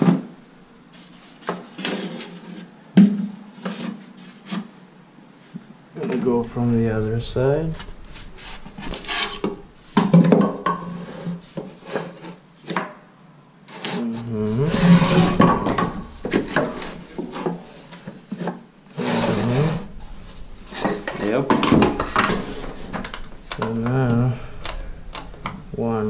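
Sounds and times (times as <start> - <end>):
wood scraping on wood: 6.4 - 12.8, 13.7 - 26.0.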